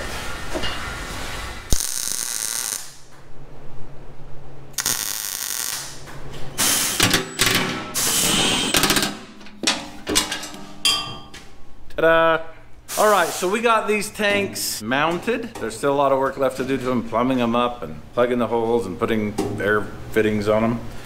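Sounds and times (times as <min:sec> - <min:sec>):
welding arc crackling: 0:01.6 - 0:03.1, 0:04.8 - 0:07.1.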